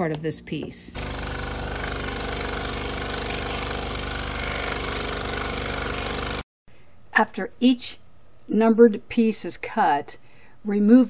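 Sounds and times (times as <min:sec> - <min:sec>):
scroll saw cutting wood: 0:01.0 - 0:06.4.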